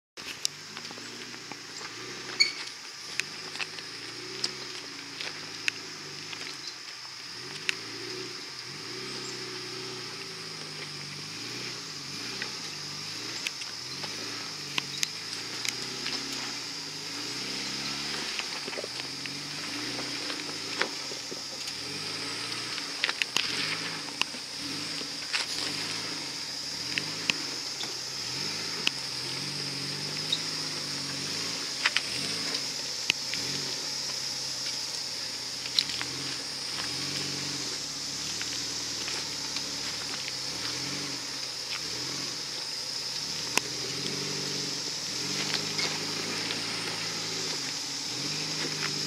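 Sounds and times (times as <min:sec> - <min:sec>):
off-road vehicle engine revving: 0:00.0 - 0:49.0
rocks knocking under tyres: 0:17.9 - 0:26.0.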